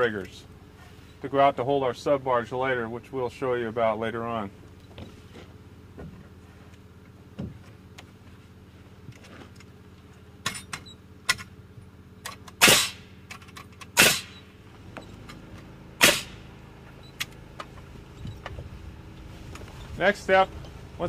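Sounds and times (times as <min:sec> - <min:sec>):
lumber knocks: 0:07.4 - 0:07.7
pneumatic nailer firing: 0:12.2 - 0:14.5, 0:16.0 - 0:16.5.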